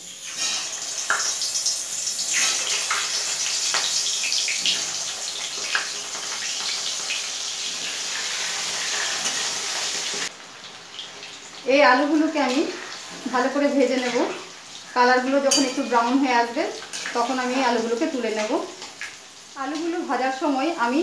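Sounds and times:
potatoes sizzling in hot oil: 0:00.0 - 0:21.0
metal spatula clinking: 0:15.5 - 0:16.0.

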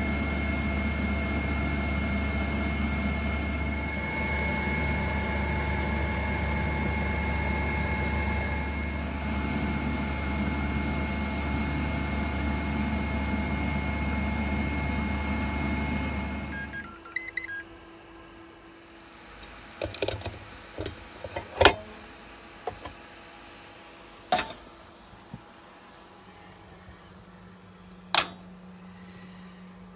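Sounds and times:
air fryer fan hum: 0:00.0 - 0:29.9
clicks and knocks of fryer parts: 0:19.4 - 0:22.0, 0:22.6 - 0:23.0, 0:24.3 - 0:24.6, 0:28.0 - 0:28.4.

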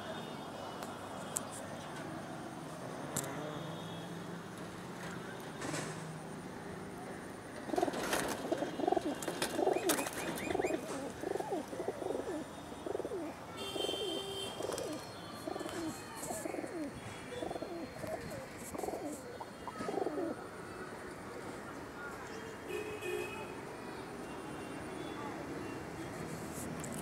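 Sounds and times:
pigeons cooing: 0:07.7 - 0:13.4, 0:14.1 - 0:20.4.

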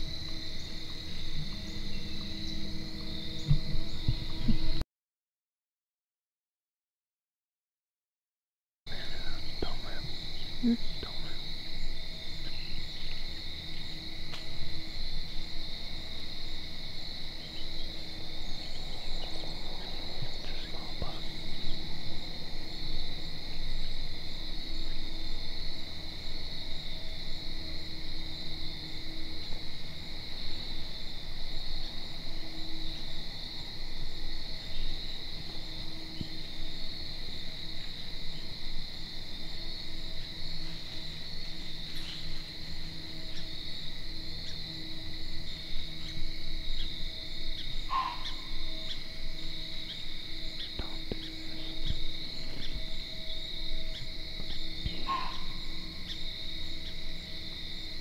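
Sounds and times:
crickets trilling: 0:00.0 - 0:04.8, 0:08.9 - 0:58.0
low rumble: 0:00.0 - 0:04.8.

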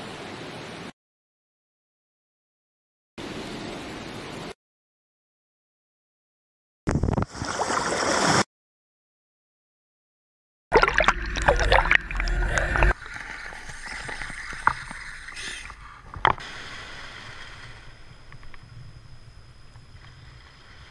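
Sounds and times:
water wash and surf: 0:00.0 - 0:00.9, 0:07.2 - 0:08.4, 0:10.8 - 0:18.9
water churning and bubbling: 0:10.7 - 0:18.0.

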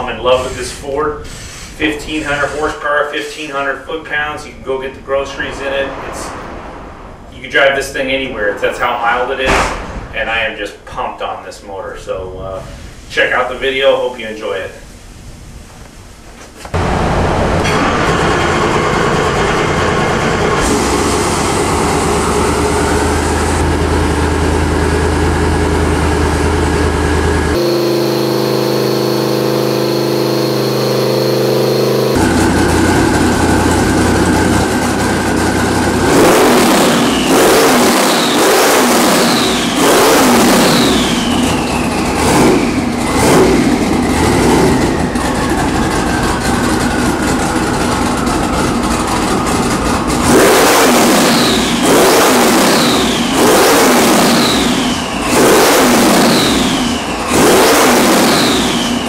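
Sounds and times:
engine revving: 0:04.8 - 0:07.9, 0:16.8 - 0:59.0
turbo whine: 0:16.8 - 0:59.0.

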